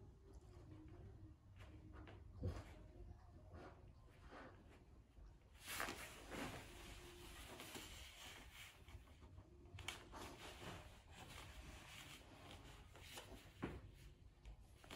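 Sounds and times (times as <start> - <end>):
fabric rustling: 5.5 - 9.1, 9.9 - 14.9.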